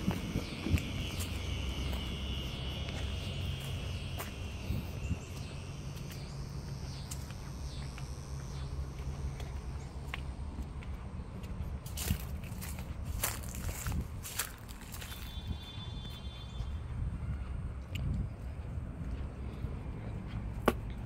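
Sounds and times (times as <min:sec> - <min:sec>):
high insect buzz: 0:00.0 - 0:10.5, 0:11.9 - 0:16.8
footsteps: 0:00.0 - 0:15.6
low rumble: 0:00.0 - 0:21.0.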